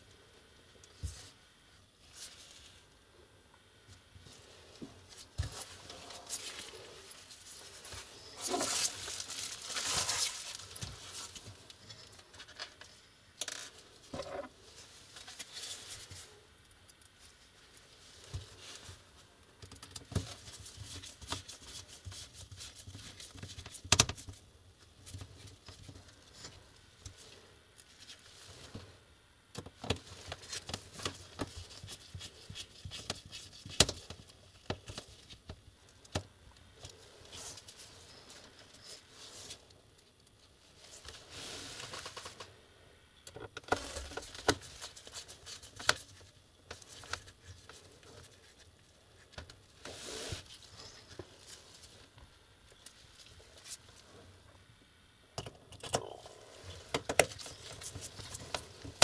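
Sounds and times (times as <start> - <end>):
gloved hands rustling: 4.2 - 12.5.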